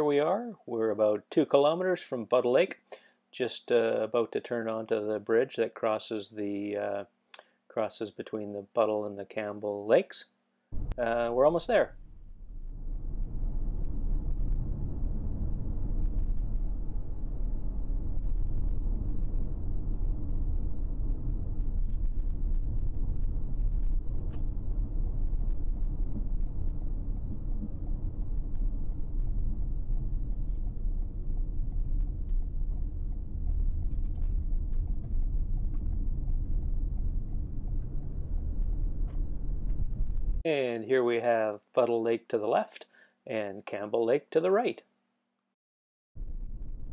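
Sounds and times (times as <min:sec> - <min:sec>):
car interior road rumble: 0:12.1 - 0:40.4.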